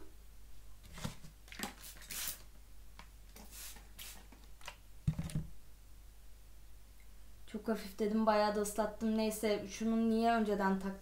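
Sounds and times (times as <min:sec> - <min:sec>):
spray bottle hisses: 0:01.6 - 0:02.5, 0:03.4 - 0:04.4.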